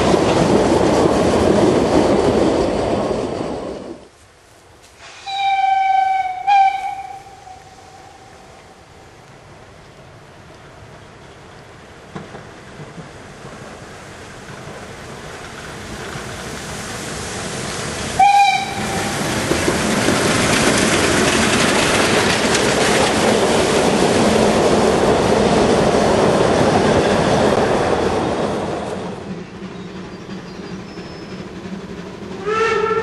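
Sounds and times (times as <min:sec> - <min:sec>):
wooden coaches rattling: 0:00.0 - 0:04.1, 0:10.6 - 0:33.0
steam train passing: 0:00.0 - 0:33.0
steam whistle blast: 0:05.0 - 0:08.5, 0:18.2 - 0:19.2, 0:32.4 - 0:33.0.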